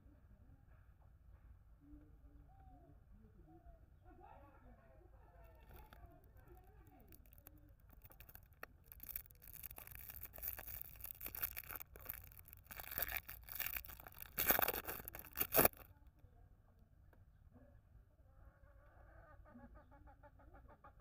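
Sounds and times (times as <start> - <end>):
plastic wrapper crinkling: 5.6 - 15.9.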